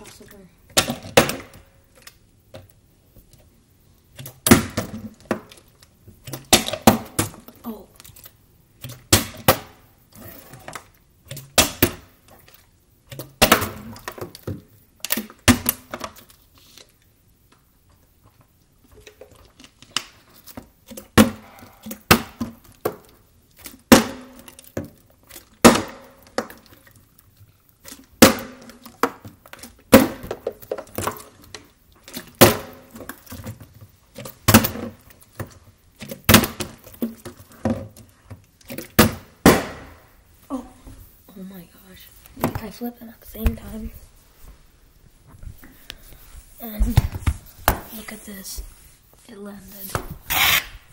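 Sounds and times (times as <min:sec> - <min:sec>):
plastic bottles thudding on stone: 0:00.7 - 0:01.7, 0:04.2 - 0:05.6, 0:06.2 - 0:07.6, 0:08.8 - 0:09.8, 0:10.7 - 0:12.2, 0:13.1 - 0:16.2, 0:20.6 - 0:23.1, 0:23.8 - 0:25.0, 0:25.6 - 0:26.7, 0:28.2 - 0:31.3, 0:32.1 - 0:38.1, 0:38.7 - 0:40.1.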